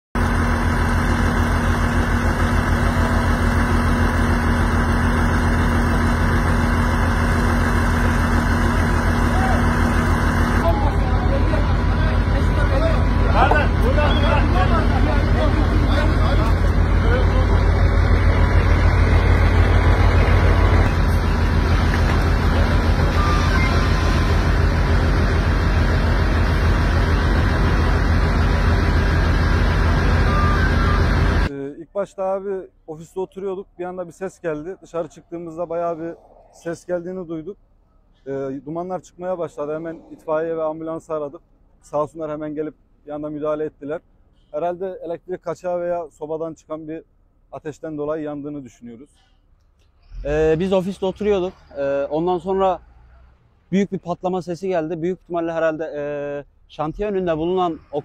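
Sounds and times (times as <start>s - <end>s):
truck engine idling: 0.2s - 31.5s, 49.2s - 58.0s.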